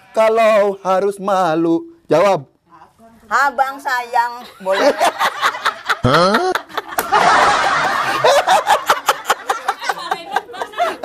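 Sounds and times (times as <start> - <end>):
man laughing hard: 4.8 - 11.0.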